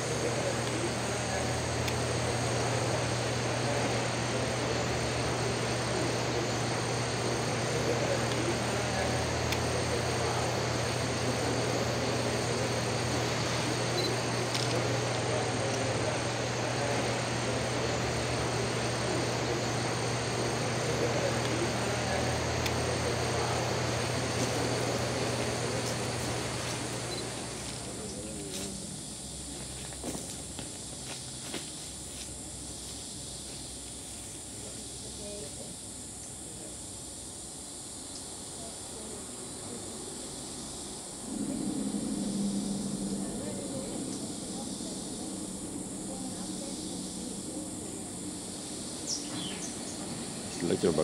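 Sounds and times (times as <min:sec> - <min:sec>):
high-pitched whining tones: 0:00.0 - 0:29.5, 0:40.6 - 0:51.0
low mechanical hum: 0:00.0 - 0:51.0.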